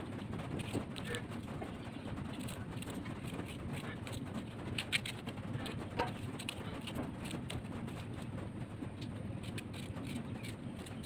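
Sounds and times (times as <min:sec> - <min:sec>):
knife cutting raw mango: 0:02.3 - 0:07.6, 0:09.4 - 0:11.0.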